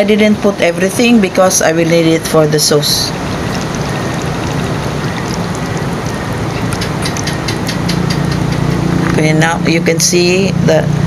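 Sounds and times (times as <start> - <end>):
hand squishing meat in marinade: 1.7 - 9.1
soft wet clicks: 3.4 - 9.2.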